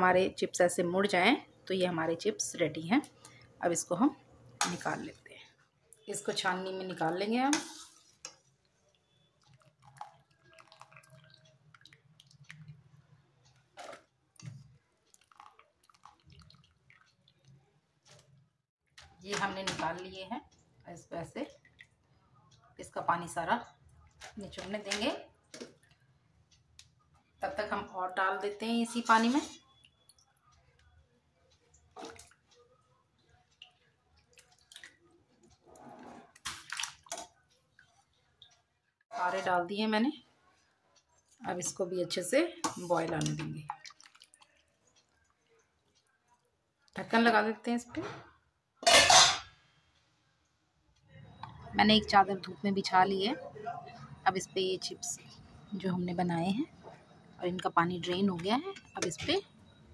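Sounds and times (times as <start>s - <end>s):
wet squishing and dripping: 8.0s - 19.2s, 21.5s - 22.6s, 25.4s - 27.3s, 31.5s - 39.1s, 43.0s - 47.0s
potato slices splashing into water: 36.3s - 37.9s, 42.7s - 45.7s.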